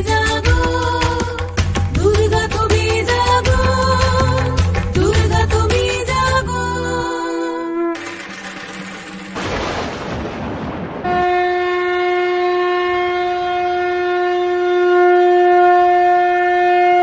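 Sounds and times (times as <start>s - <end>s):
conch shell blown: 7.2s - 8.8s, 11.0s - 17.0s.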